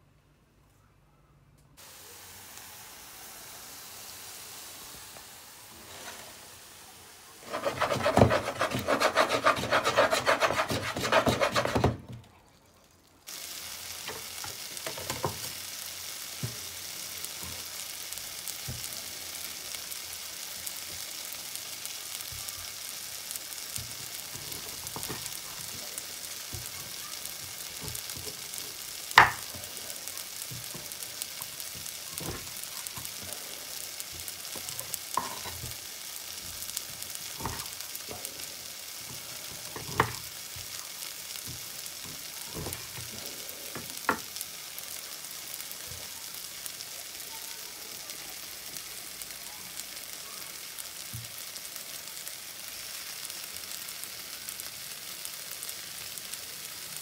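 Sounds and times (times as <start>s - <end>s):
onions sizzling in a frying pan: 1.8s - 57.0s
rapid chopping strokes: 7.4s - 12.0s
knife cutting through corn cob: 7.5s - 12.0s.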